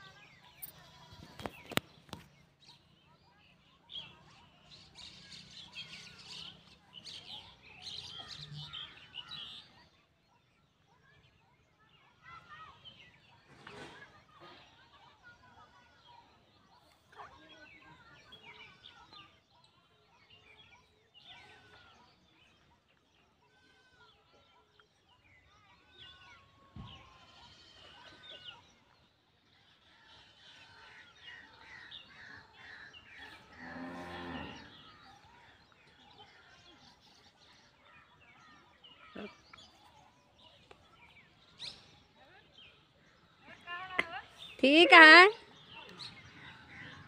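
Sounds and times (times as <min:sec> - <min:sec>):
birds chirping: 0:30.4 - 0:47.0.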